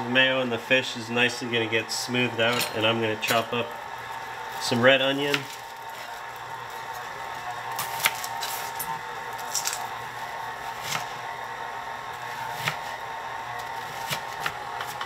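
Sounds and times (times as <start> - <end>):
knife chopping on cutting board: 12.5 - 13.0, 13.8 - 15.0.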